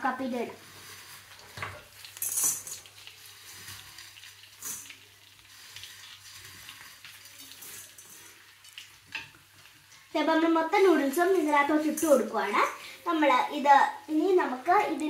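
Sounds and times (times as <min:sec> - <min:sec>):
dry noodles pattering in wok: 0:00.3 - 0:12.4.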